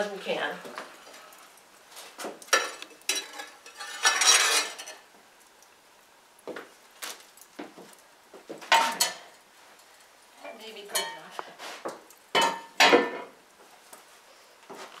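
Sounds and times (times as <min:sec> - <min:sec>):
metal tool scraping brick floor: 0:03.1 - 0:05.0.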